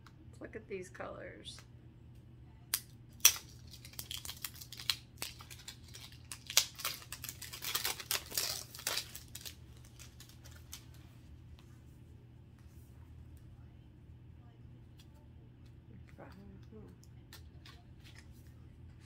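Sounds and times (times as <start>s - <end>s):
plastic packaging crinkling: 3.2s - 11.0s.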